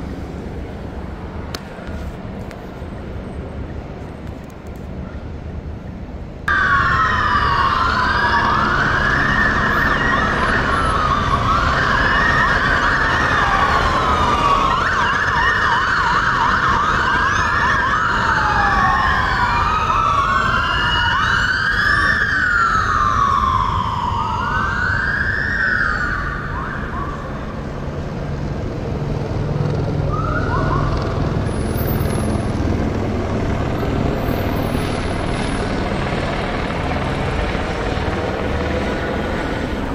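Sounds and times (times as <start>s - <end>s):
emergency vehicle sirens wailing: 6.4s - 39.9s.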